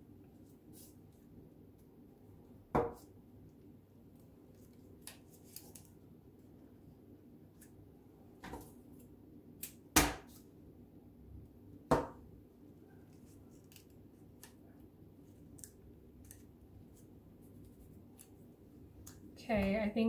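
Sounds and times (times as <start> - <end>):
paper rustling: 4.5 - 5.9.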